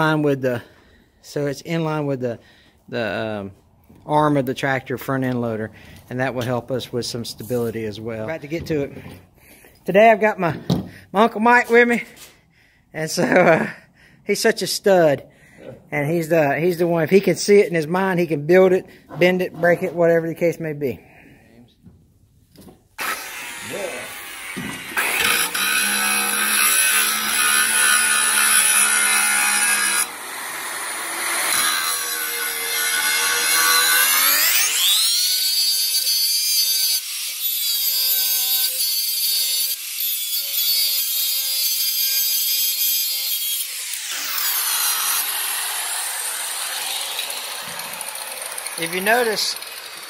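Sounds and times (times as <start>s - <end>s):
angle grinder grinding metal: 23.0s - 50.0s.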